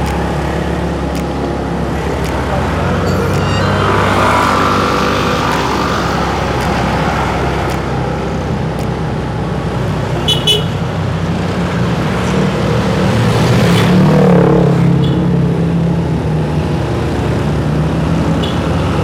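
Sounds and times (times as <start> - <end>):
engine rising in pitch: 0.0 - 8.8
traffic noise: 0.0 - 19.0
short horn beeps: 3.0 - 4.7.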